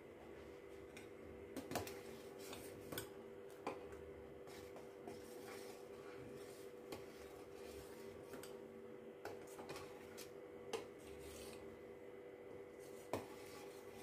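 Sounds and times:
faint steady hum: 0.0 - 14.0
spoon stirring in metal pot: 1.6 - 8.6, 9.2 - 11.8, 12.8 - 14.0.

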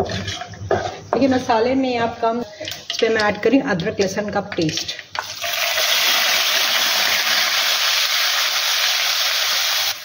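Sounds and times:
paste sizzling in hot oil: 5.2 - 10.0.

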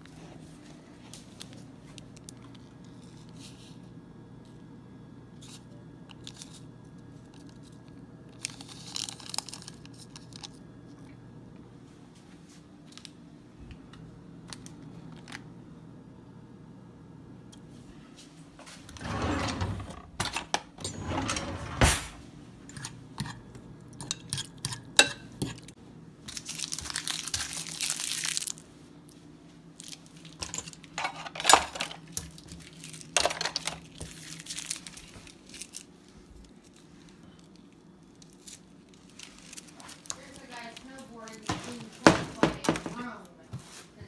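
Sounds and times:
rustling and crinkling: 5.4 - 11.1, 26.2 - 44.0.

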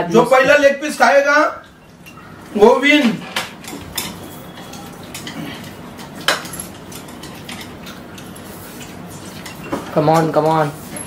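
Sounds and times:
chopsticks clicking on plates: 3.3 - 10.6.

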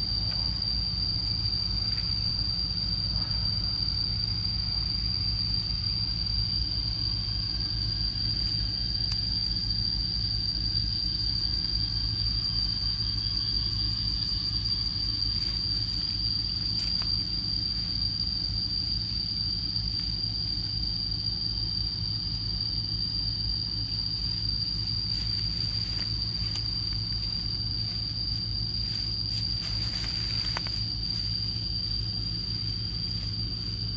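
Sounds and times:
low rumble: 0.0 - 33.9
faint rustles and clicks: 24.3 - 33.9.

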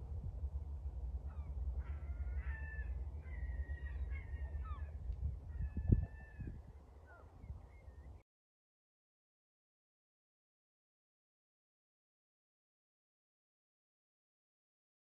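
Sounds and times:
wind rumble on microphone: 0.0 - 8.2
birds calling: 1.2 - 8.2.

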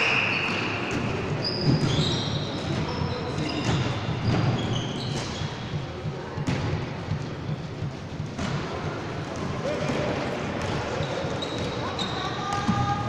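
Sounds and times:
sneakers squeaking on gym floor: 0.0 - 13.0
basketball bouncing: 3.4 - 11.8.

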